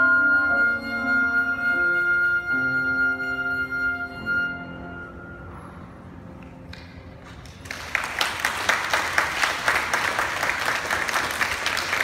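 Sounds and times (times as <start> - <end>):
flute and piano note: 0.0 - 6.2
audience applause: 7.3 - 12.0.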